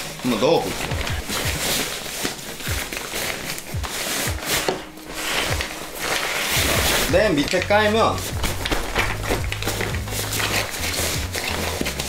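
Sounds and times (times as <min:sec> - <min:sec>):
nylon fabric rustling and scraping: 0:00.0 - 0:12.0
music with kick-drum beat: 0:00.7 - 0:01.8, 0:02.7 - 0:03.0, 0:03.7 - 0:04.8, 0:06.5 - 0:12.0.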